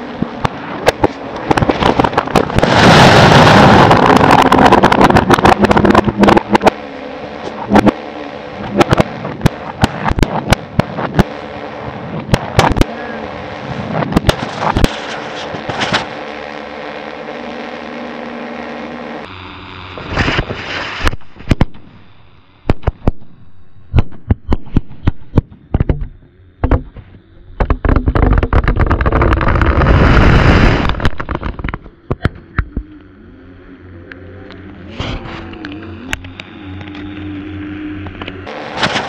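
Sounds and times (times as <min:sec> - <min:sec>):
loud rushing blast: 0:00.0 - 0:19.0, 0:28.9 - 0:31.8, 0:38.4 - 0:39.0.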